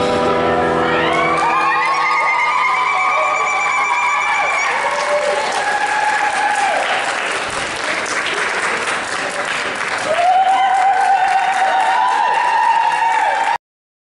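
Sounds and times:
long held whoops: 0:00.8 - 0:06.9, 0:10.1 - 0:13.6
audience applauding: 0:01.0 - 0:13.6.

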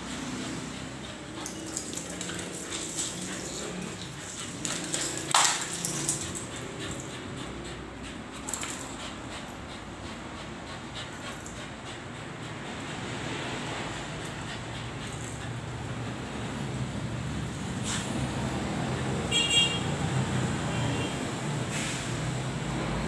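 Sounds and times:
dogs growling: 0:00.0 - 0:16.8
claws clicking on tiled floor: 0:01.0 - 0:09.4.

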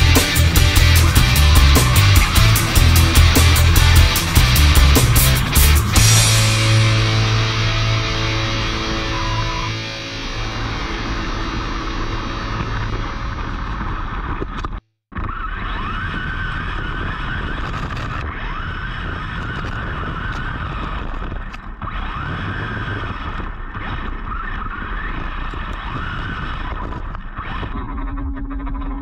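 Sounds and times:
electric motor whine: 0:00.0 - 0:14.6
wind and tyre noise: 0:07.0 - 0:29.0.

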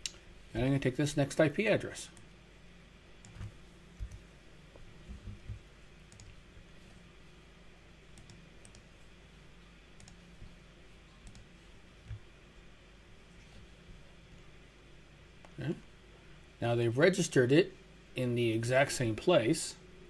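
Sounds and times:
room hum: 0:00.0 - 0:20.0
mouse and keyboard clicks: 0:03.2 - 0:04.2
soft low thumps: 0:05.0 - 0:05.7.

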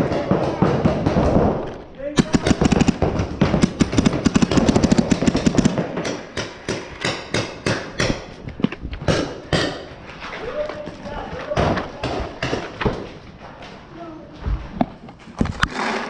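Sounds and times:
paintballs smacking inflatable bunker: 0:00.1 - 0:08.3
paintball markers firing: 0:00.1 - 0:09.9.

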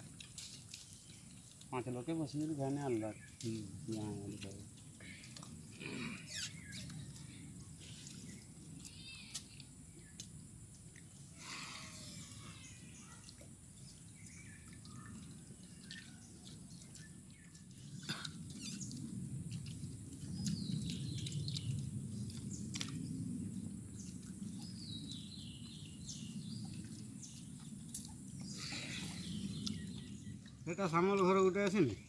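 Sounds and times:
birds chirping: 0:00.0 - 0:32.0
low rumble: 0:17.4 - 0:30.6.

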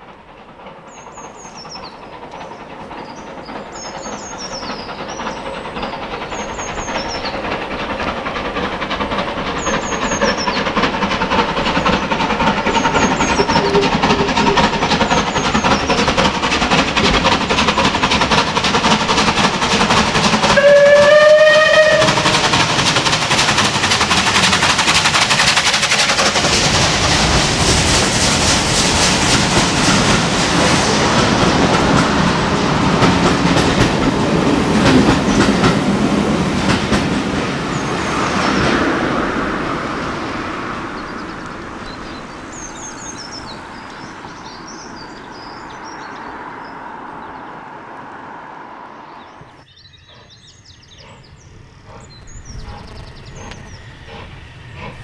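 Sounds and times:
rail noise: 0:00.0 - 0:55.0
steam locomotive exhaust beats: 0:00.0 - 0:55.0
birds singing faintly: 0:00.3 - 0:16.4, 0:40.0 - 0:47.6, 0:49.0 - 0:55.0
steam whistle: 0:20.5 - 0:22.4.

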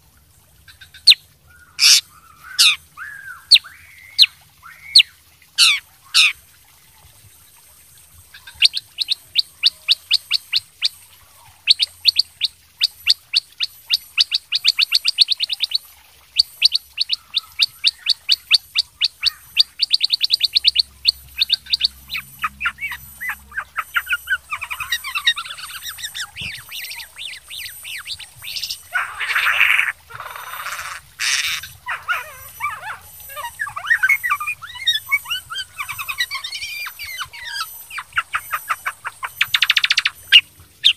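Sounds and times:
bulbul singing: 0:08.3 - 0:40.9.

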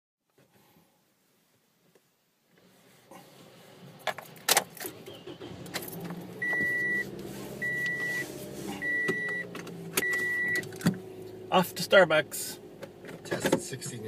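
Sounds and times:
car warning chime beeping: 0:06.4 - 0:10.8.

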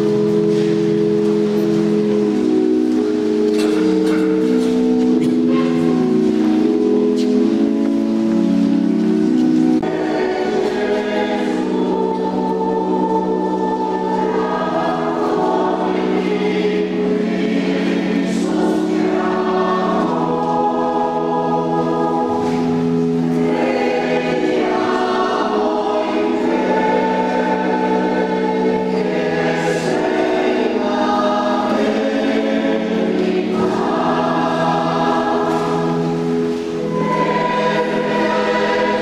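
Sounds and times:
choir singing a slow hymn: 0:08.9 - 0:39.0.

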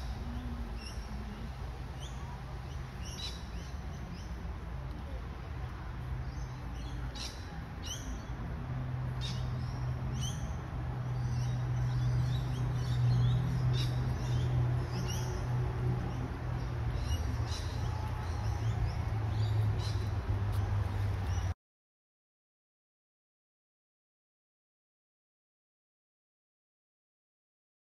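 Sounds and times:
small birds chirping: 0:00.0 - 0:08.4, 0:09.2 - 0:21.6.

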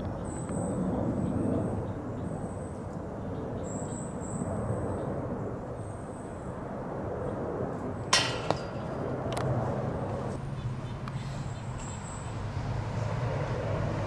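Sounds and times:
sharp ringing knock: 0:08.1 - 0:08.9.

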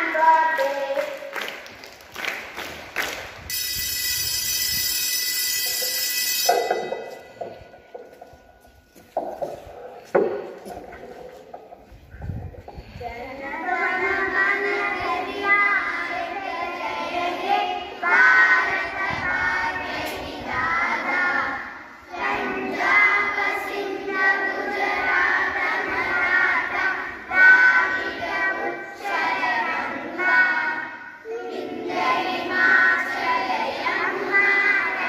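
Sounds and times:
young children singing in unison: 0:00.0 - 0:01.2, 0:12.7 - 0:35.0.

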